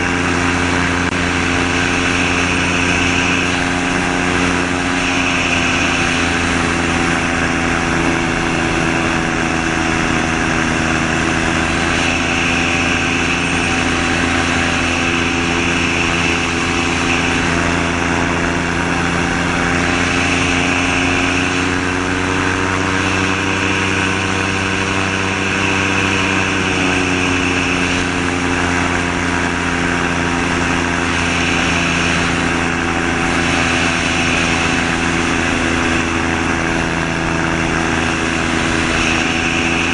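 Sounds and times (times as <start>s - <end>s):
aircraft engine and propeller: 0.0s - 39.9s.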